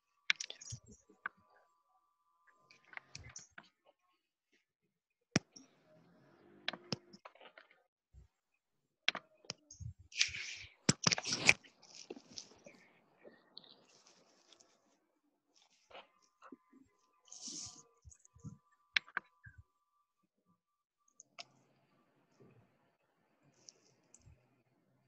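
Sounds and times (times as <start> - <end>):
keyboard and mouse clicks: 0.3 - 1.4, 6.6 - 7.7, 9.1 - 12.8.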